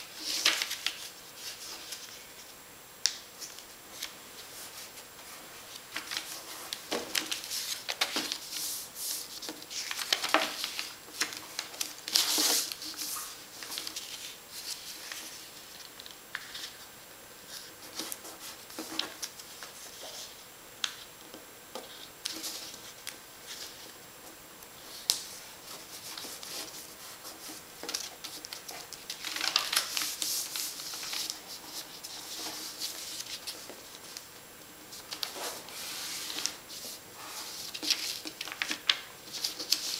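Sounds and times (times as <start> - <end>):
paper being folded and creased: 0.0 - 2.4, 5.6 - 16.8, 24.8 - 34.2, 34.9 - 39.9.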